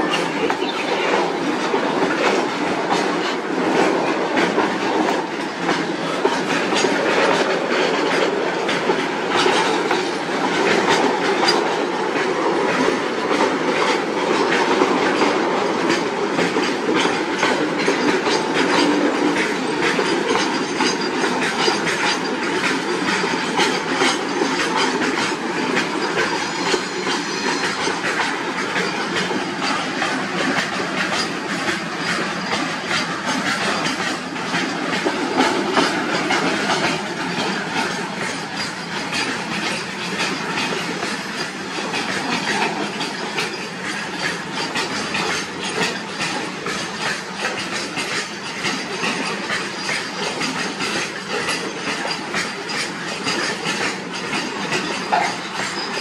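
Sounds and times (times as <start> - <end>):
wheels clacking over rail joints: 0.0 - 56.0.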